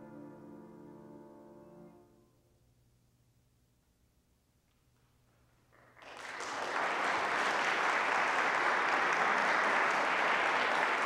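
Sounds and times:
audience applause: 5.8s - 11.0s.

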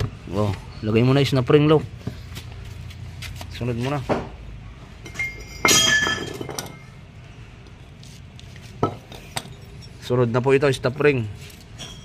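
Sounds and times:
metallic clink ringing: 5.0s - 6.9s, 11.6s - 12.0s.

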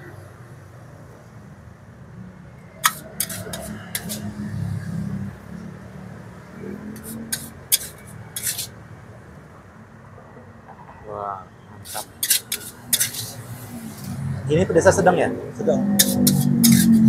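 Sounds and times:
metal utensils clinking on a wok: 2.8s - 4.3s, 7.0s - 8.7s, 11.9s - 13.4s, 15.9s - 17.0s.

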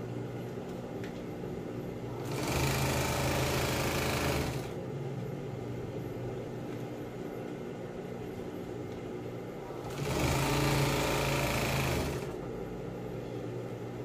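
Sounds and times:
sewing machine stitching: 2.2s - 4.8s, 9.8s - 12.4s
low steady hum: 4.4s - 10.2s, 12.0s - 14.0s.

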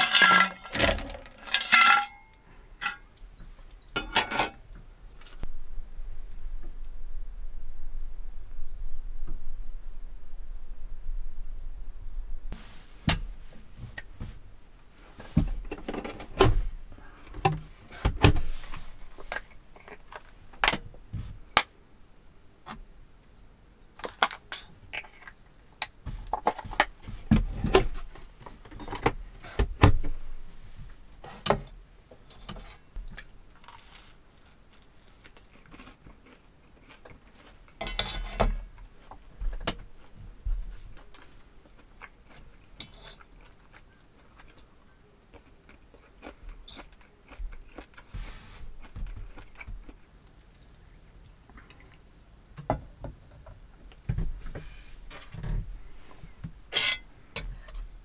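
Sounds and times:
utensils clinking on metal plate: 0.0s - 3.1s, 4.0s - 4.6s, 37.8s - 38.4s, 56.7s - 57.1s
chewing: 33.1s - 37.8s, 41.0s - 52.1s.

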